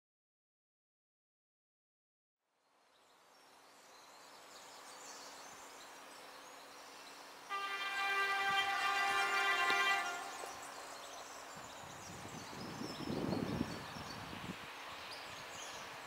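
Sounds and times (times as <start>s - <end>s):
locomotive horn blast: 7.5s - 11.0s
faint train rumble: 7.5s - 12.6s.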